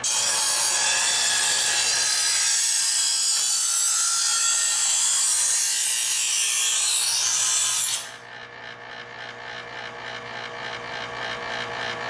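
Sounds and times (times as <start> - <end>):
knife sharpener grinding: 0.0 - 8.4
motor hum: 7.2 - 12.0.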